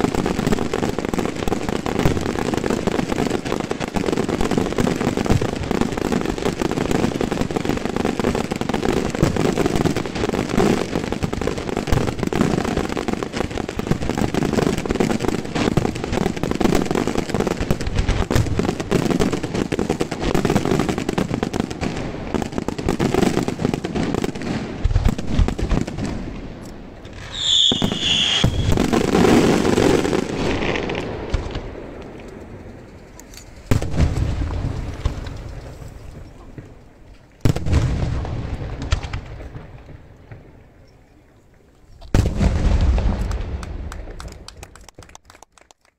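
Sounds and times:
crackling fireworks stars: 0:00.0 - 0:45.9
fireworks shell bursts: 0:27.0 - 0:28.8.

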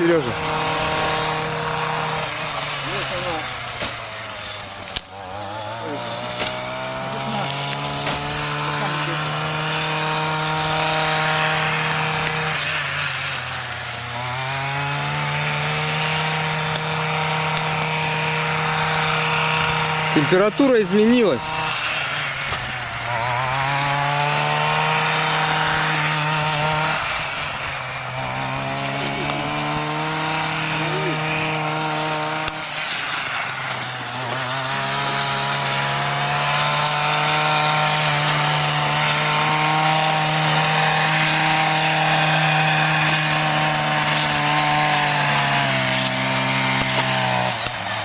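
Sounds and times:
brush cutter running at high revs: 0:00.0 - 0:48.0.

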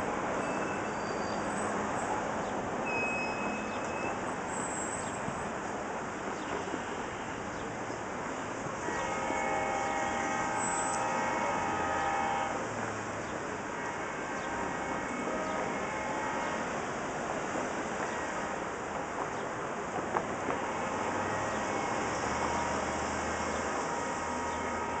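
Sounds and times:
freight train rumbling past: 0:08.1 - 0:25.0
locomotive air horn chord: 0:08.8 - 0:12.7, 0:13.6 - 0:17.0, 0:20.6 - 0:25.0.

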